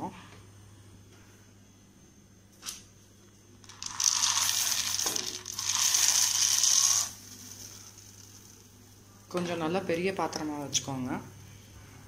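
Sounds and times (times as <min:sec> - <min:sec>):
dry chunks rattling into pot: 0:03.7 - 0:08.6.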